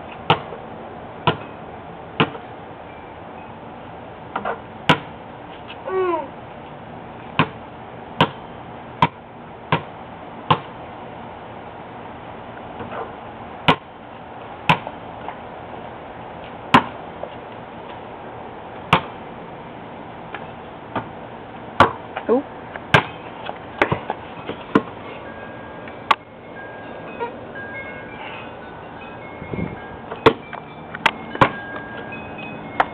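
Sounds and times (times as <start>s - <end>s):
basketball bouncing on concrete: 0.2s - 0.6s, 1.2s - 1.5s, 2.2s - 2.5s, 4.3s - 5.1s, 7.4s - 7.6s, 8.2s - 10.8s, 13.6s - 13.9s, 14.6s - 15.0s, 16.7s - 17.0s, 18.9s - 19.2s, 20.3s - 21.2s, 21.8s - 25.0s, 30.2s - 30.4s, 31.0s - 31.6s.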